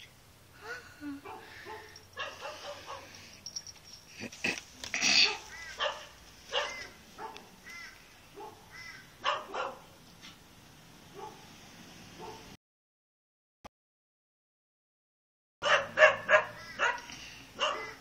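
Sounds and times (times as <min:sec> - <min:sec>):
small dog yipping and barking: 0:05.2 - 0:07.4, 0:15.6 - 0:18.0.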